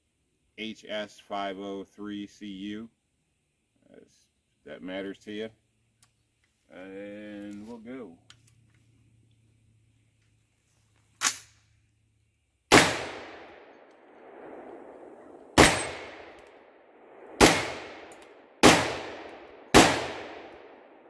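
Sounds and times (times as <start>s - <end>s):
short sharp crack: 11.2s - 11.6s
rifle shots echoing: 12.7s - 21.0s.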